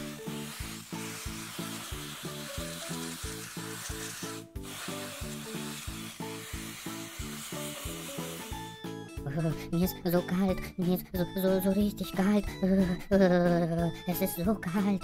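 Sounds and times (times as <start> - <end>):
spray can hissing: 0.0 - 8.8
bouncy background music: 0.0 - 15.0.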